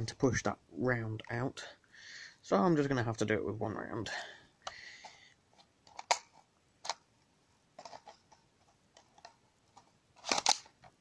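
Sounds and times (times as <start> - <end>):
plastic clicks of toy magazine: 10.2 - 10.8.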